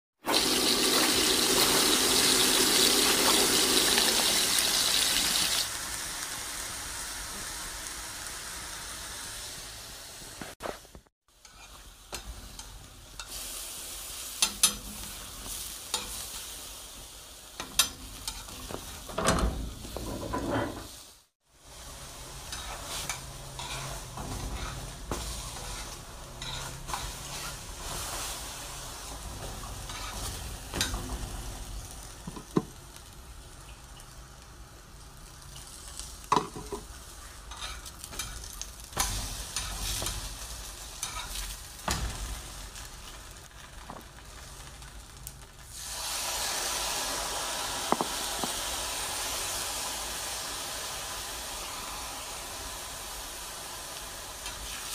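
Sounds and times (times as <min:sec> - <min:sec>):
food sizzling in oil: 0:00.2 - 0:54.9
utensils scraping pan: 0:11.4 - 0:13.3, 0:22.5 - 0:28.0, 0:29.1 - 0:31.1, 0:37.5 - 0:40.2.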